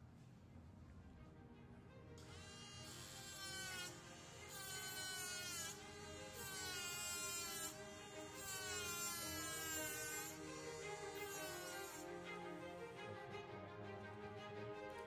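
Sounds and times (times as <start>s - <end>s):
soft background music: 0.0s - 15.0s
electric rotary saw whining: 2.2s - 12.9s.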